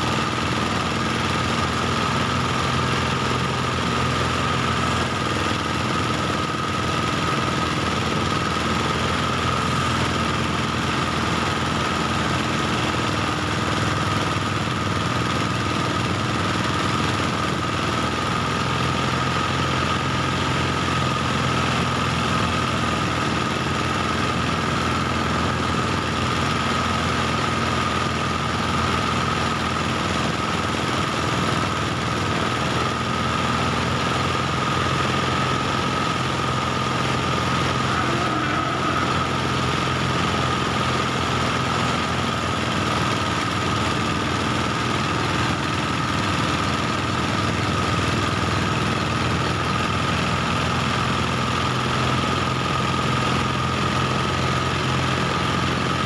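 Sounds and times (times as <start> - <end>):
rice thresher engine running: 0.0 - 56.0
high-pitched whine: 37.5 - 41.0.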